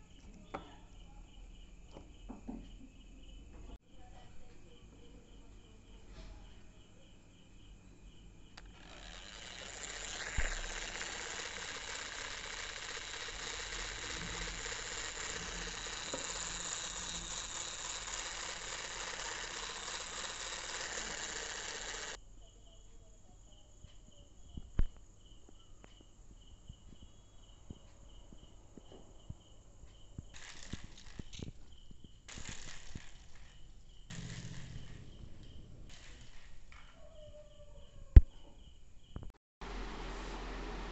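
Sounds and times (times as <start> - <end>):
small electric motor whirring: 8.6 - 22.2, 30.4 - 31.5, 32.3 - 35.0.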